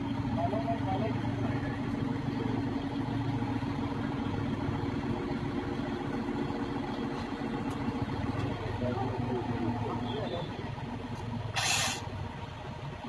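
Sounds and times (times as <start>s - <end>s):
truck engine running: 0.0s - 13.0s.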